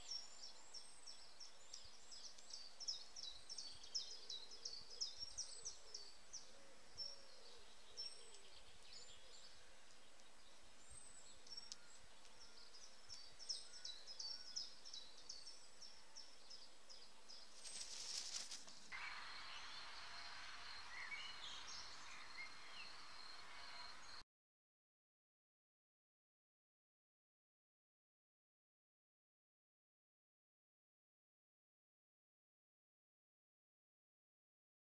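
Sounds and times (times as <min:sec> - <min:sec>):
rustle: 0:00.0 - 0:24.1
songbirds chirping: 0:00.0 - 0:24.2
steady background hiss: 0:16.7 - 0:24.2.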